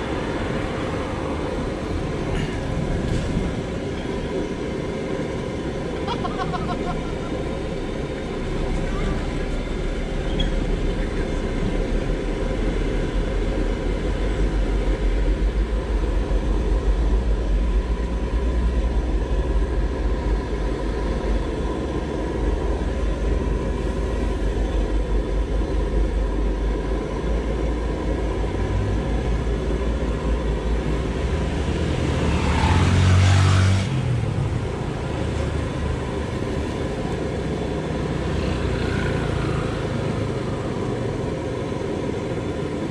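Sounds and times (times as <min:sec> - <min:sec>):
road noise: 0:00.0 - 0:42.9
wok burner roaring: 0:00.0 - 0:42.9
vehicle passing: 0:31.0 - 0:35.8.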